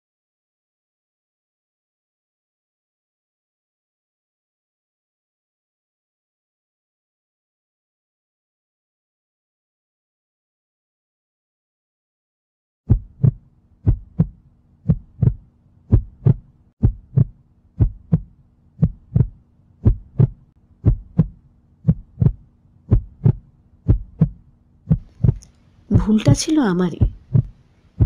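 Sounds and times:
faint low hum: 12.9 - 28.0
heartbeat thumps: 12.9 - 28.0.

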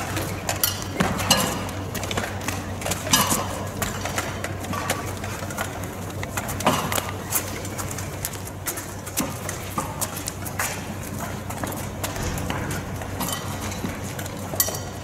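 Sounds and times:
knocks and clatter: 8.8 - 15.0.

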